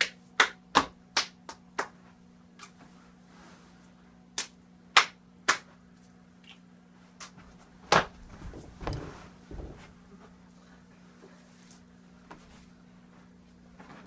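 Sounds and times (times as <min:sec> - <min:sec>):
hands slapping and clapping: 0:00.0 - 0:02.8, 0:04.3 - 0:05.8
soft thuds of movement: 0:07.4 - 0:10.4.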